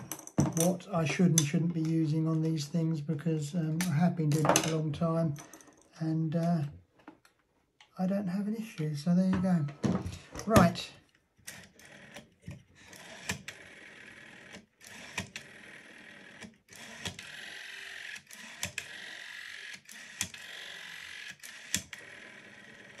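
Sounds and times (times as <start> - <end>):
rotary phone dial whirring: 11.4 - 23.0.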